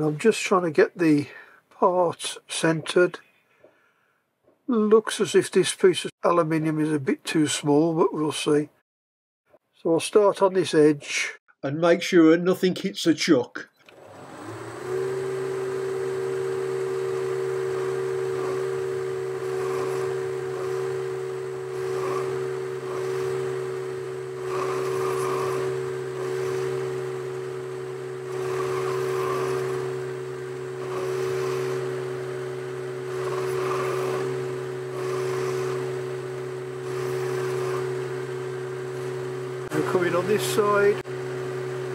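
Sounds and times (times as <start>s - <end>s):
lathe tool cutting metal: 13.9s - 41.9s
metalworking lathe humming: 13.9s - 41.9s.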